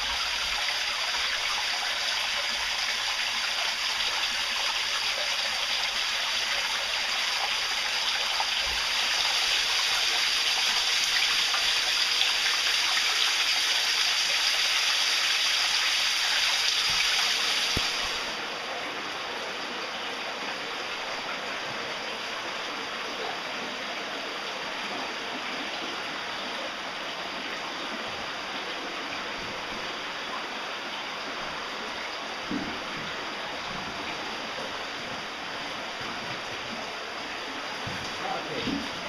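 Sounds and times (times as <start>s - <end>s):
stream splashing over rocks: 0.0s - 18.3s.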